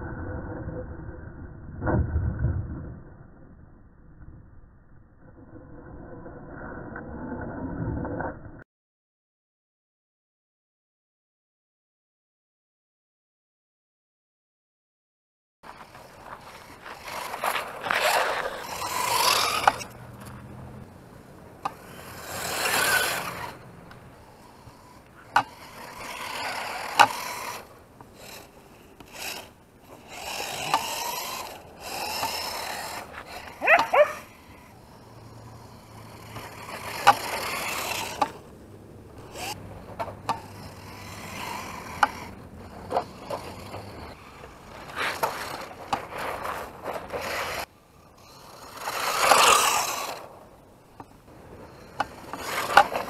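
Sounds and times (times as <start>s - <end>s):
tires scraping on ice: 5.2s - 8.6s, 15.7s - 53.0s.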